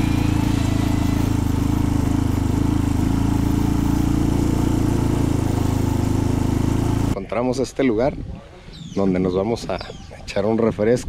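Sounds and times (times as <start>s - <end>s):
motorcycle engine running: 0.0s - 7.2s.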